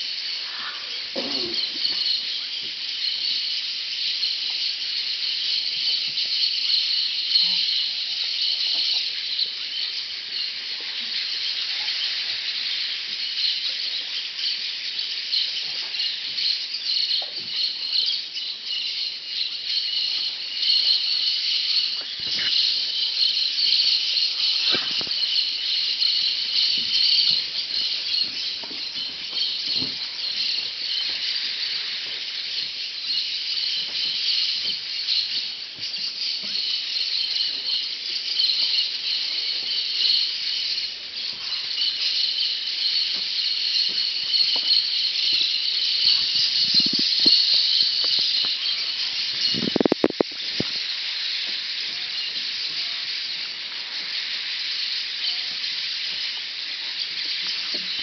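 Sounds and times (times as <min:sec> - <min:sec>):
parrots chattering and screeching: 0:00.0 - 0:03.1, 0:06.1 - 0:58.0.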